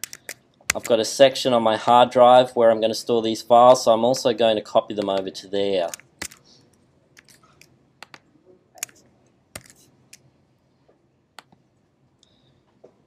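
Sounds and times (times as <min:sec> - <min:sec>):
mouse and keyboard clicks: 0:00.0 - 0:00.9, 0:05.9 - 0:06.4, 0:07.2 - 0:08.2, 0:09.6 - 0:10.2.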